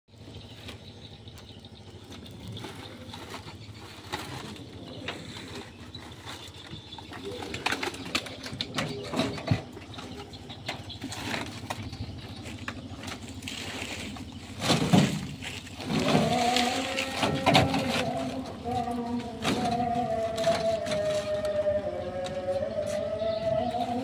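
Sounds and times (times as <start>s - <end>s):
plastic sacks rustling: 11.0s - 21.3s.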